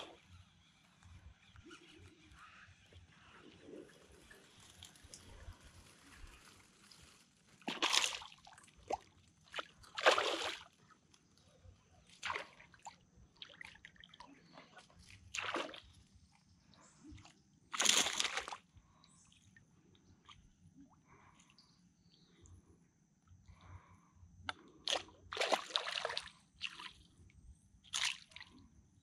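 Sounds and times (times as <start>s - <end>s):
kayak paddle splashing in water: 7.6s - 10.7s, 24.9s - 27.0s.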